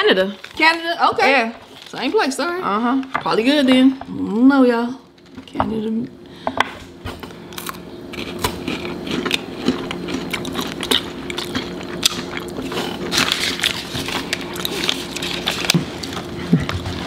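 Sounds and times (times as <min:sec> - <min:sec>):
chewing crunchy wafer: 0:07.2 - 0:17.0.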